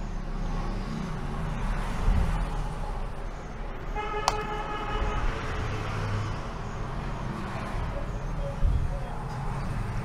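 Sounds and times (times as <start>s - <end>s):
road traffic: 0.0s - 10.0s
vehicle horn: 4.0s - 5.8s.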